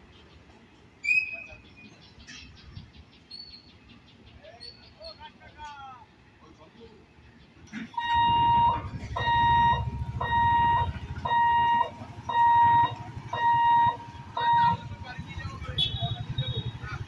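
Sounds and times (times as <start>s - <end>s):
warning hooter beeping: 7.9s - 17.0s
motorcycle engines running: 8.0s - 17.0s.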